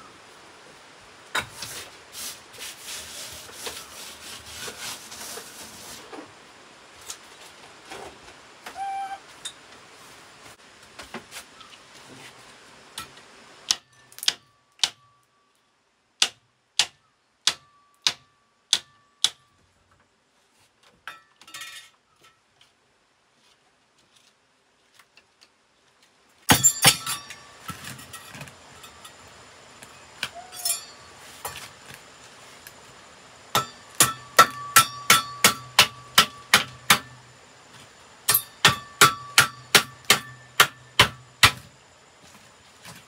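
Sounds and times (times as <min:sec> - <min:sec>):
rustling and scraping: 0:01.4 - 0:08.6, 0:09.2 - 0:13.2, 0:20.0 - 0:26.4, 0:27.0 - 0:33.0, 0:42.1 - 0:43.0.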